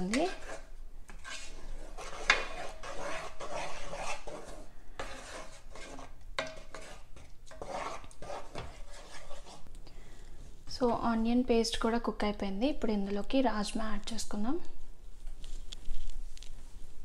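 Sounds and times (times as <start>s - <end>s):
wooden spatula scraping a pot: 0.0s - 9.7s.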